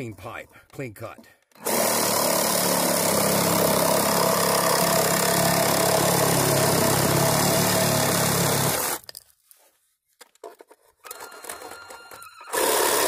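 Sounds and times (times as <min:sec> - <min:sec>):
reciprocating saw cutting pipe: 0:01.6 - 0:09.0.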